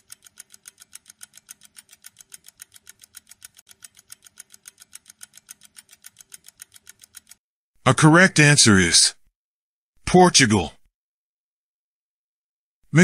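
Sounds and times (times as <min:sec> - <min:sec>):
faint clock ticking: 0:00.0 - 0:07.4.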